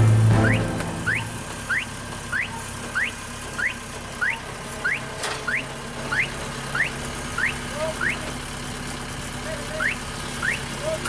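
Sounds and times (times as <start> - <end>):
engine idling: 0.0 - 11.0
short rising chirp: 0.3 - 7.6.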